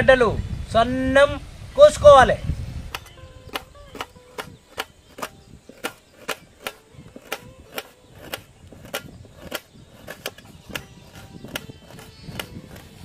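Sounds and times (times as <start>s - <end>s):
knife clicking on metal plate: 2.9s - 12.9s.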